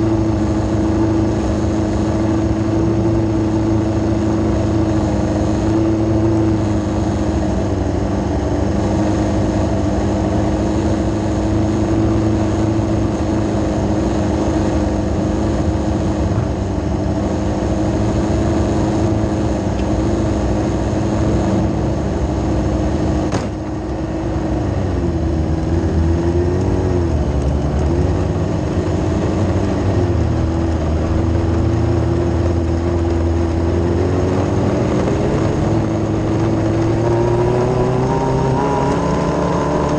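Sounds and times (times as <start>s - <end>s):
engine revs rising and falling: 24.5s - 39.9s.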